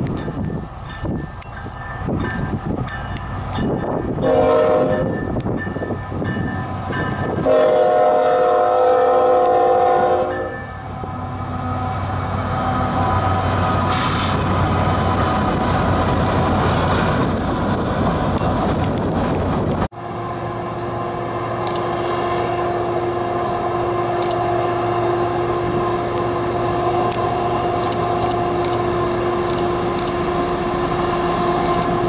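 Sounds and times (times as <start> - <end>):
diesel locomotives droning: 0.0 - 32.0
car road and wind noise: 14.2 - 19.9.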